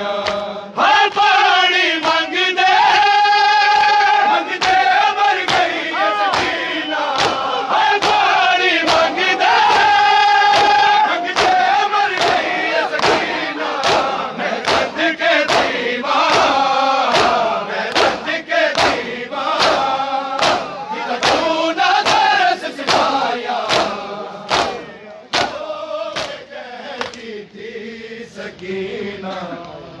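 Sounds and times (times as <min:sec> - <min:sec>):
men chanting together: 0:00.0 - 0:29.8
hands slapping bare chests: 0:00.2 - 0:00.5, 0:04.6 - 0:05.7, 0:06.3 - 0:08.3, 0:10.5 - 0:25.6, 0:26.2 - 0:26.4, 0:27.0 - 0:27.3.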